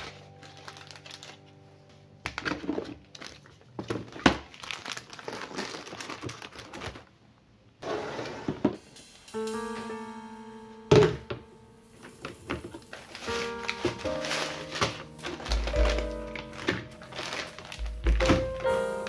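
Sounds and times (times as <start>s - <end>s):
plastic packets crinkling: 0.0s - 1.6s, 2.3s - 7.2s, 12.0s - 19.0s.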